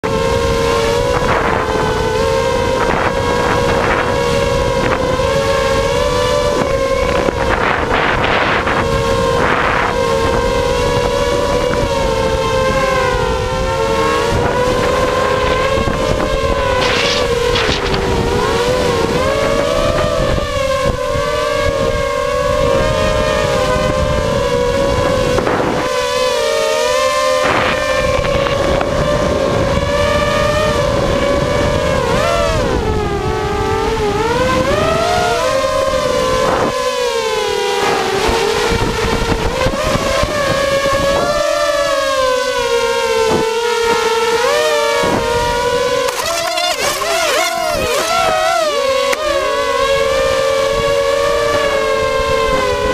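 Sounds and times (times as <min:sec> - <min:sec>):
quadcopter motors whining: 0:00.0 - 0:52.9
wind rumble on microphone: 0:00.0 - 0:52.9.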